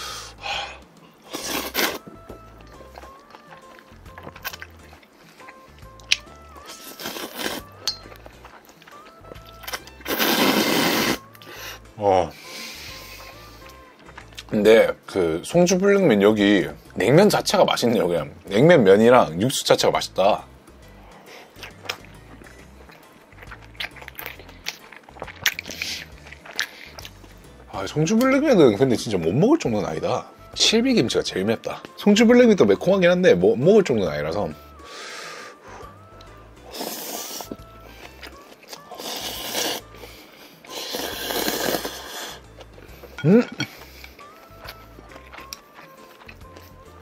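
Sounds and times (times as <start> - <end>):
background music: 0.0 - 47.0
slurping noodles: 1.3 - 2.1, 6.7 - 7.8, 10.0 - 11.3, 36.7 - 37.6, 38.8 - 39.9, 40.6 - 42.6
close-up chewing: 1.3 - 11.8, 12.9 - 14.5, 21.2 - 27.7, 35.7 - 47.0
person humming mm: 10.1 - 13.7, 38.7 - 40.0.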